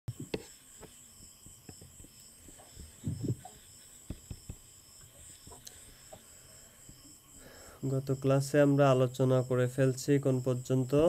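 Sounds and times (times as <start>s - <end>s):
faint high-pitched whine: 0.1s - 11.0s.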